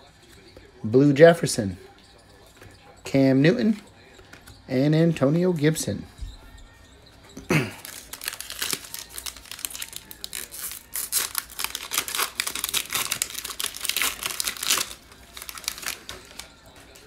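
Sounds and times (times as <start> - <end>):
foil card pack tearing: 7.5 - 17.0
wrapper crinkling: 7.5 - 17.0.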